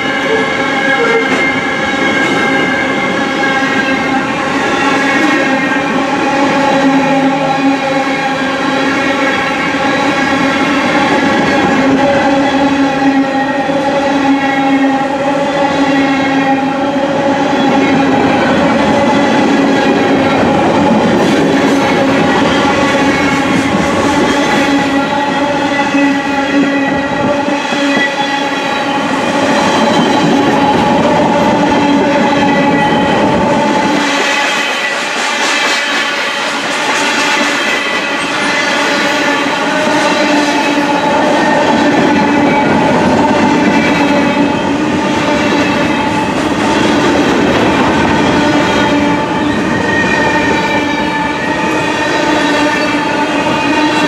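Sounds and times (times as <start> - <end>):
train wheels clattering on rails: 0.0 - 54.0.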